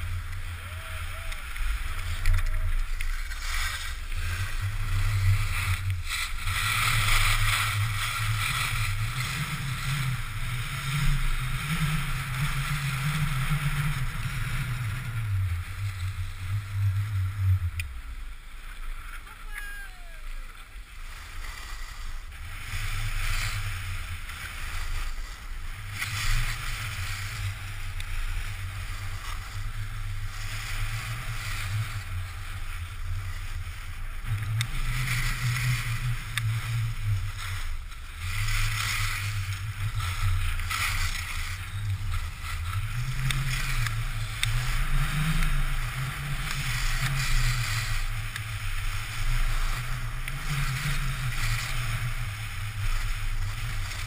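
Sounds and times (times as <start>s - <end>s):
skis scraping across snow: 0.0s - 54.0s.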